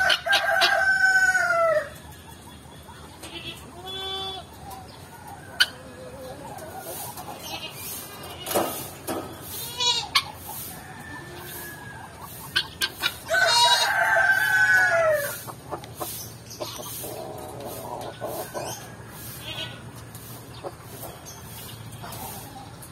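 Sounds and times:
rooster crowing: 0.0s - 1.9s, 10.7s - 12.2s, 13.2s - 15.4s
chickens clucking: 0.0s - 22.9s.

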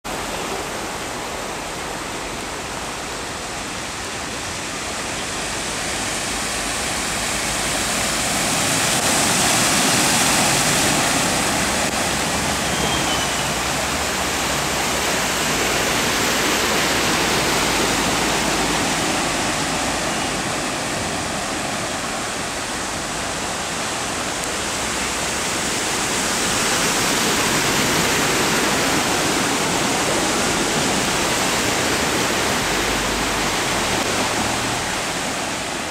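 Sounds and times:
cars splashing through flood water: 0.0s - 35.9s.

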